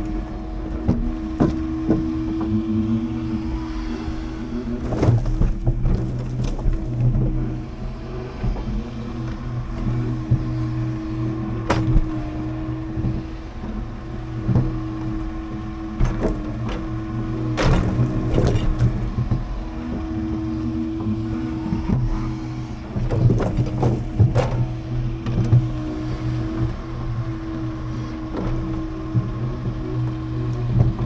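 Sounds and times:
truck diesel engine running: 0.0 - 31.0
knocks and clanks: 0.8 - 2.6, 11.6 - 12.2, 17.5 - 19.5, 23.0 - 25.8.

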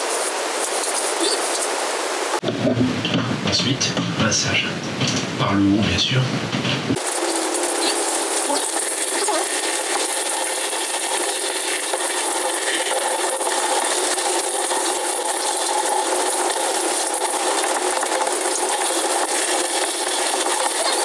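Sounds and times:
shower water spraying: 0.0 - 2.4, 7.0 - 21.0.

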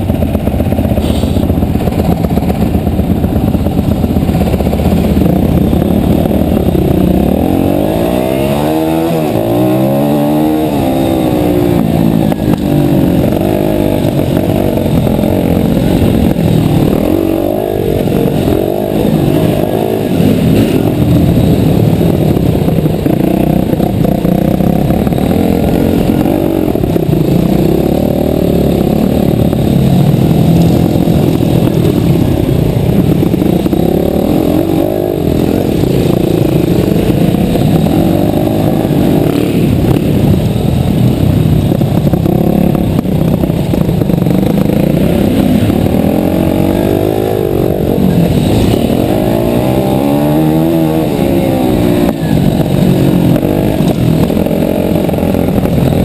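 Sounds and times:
motocross bike engine revving: 1.9 - 56.0.

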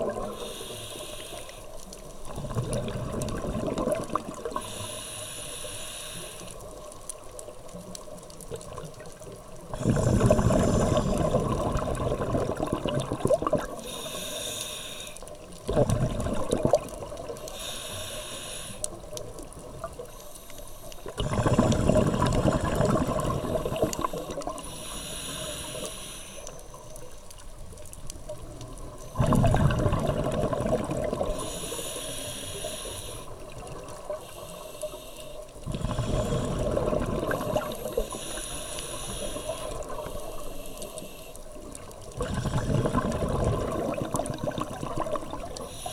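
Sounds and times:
exhaled bubbles rumbling: 0.0 - 0.4, 2.2 - 4.6, 8.4 - 13.9, 15.6 - 17.4, 21.0 - 24.6, 28.1 - 31.5, 35.6 - 38.2, 41.6 - 45.8
regulator hissing inhalations: 0.3 - 1.8, 4.5 - 6.7, 9.7 - 11.4, 13.7 - 15.4, 17.4 - 19.0, 20.1 - 22.2, 23.5 - 27.0, 31.3 - 41.5, 45.6 - 45.9.

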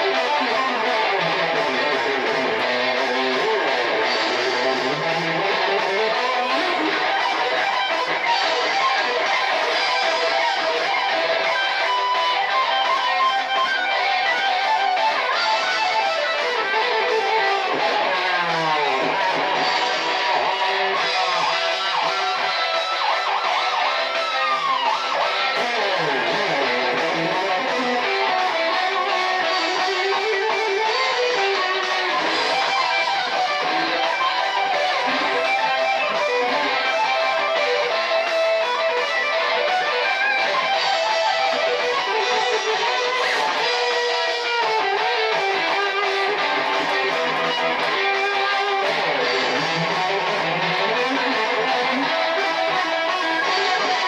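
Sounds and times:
electric guitar lead solo: 0.0 - 54.0
heavy metal backing track: 0.0 - 54.0.

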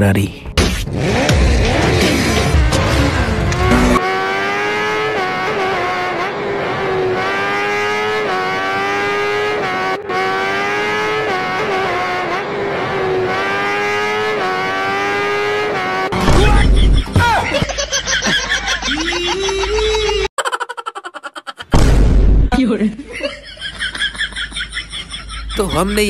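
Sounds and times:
race car engine shifting gears: 0.6 - 17.7.

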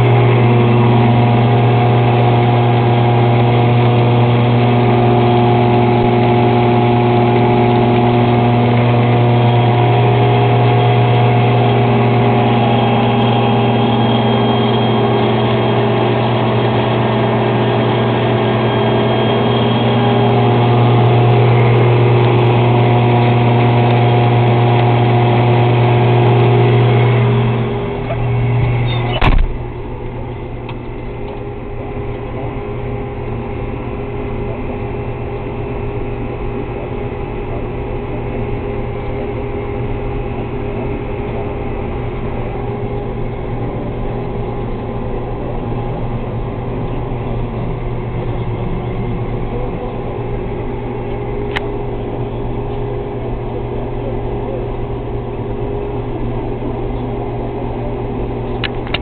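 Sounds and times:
harvester machinery drone: 0.0 - 59.0
sharp thump: 29.1 - 29.7.

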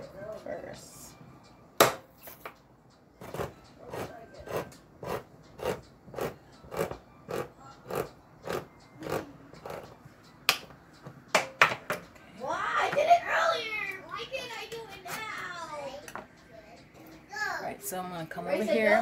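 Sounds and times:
can opener cutting tin lid: 3.2 - 9.9.

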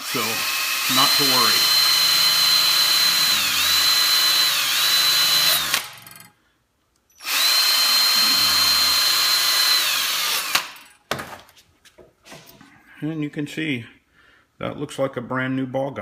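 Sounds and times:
power drill sanding metal: 0.0 - 6.0, 7.2 - 10.8.

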